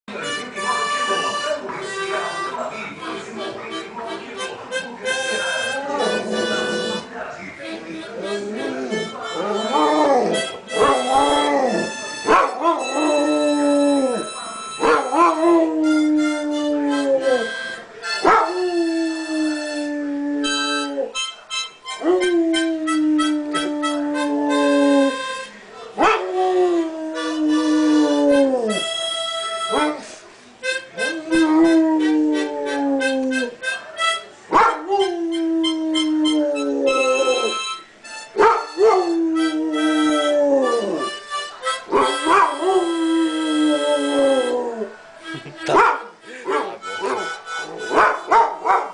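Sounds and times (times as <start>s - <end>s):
harmonica chords: 0.1s - 25.7s, 26.8s - 48.4s
dog howling: 8.8s - 14.2s, 34.6s - 37.6s, 38.4s - 41.1s, 41.9s - 45.0s.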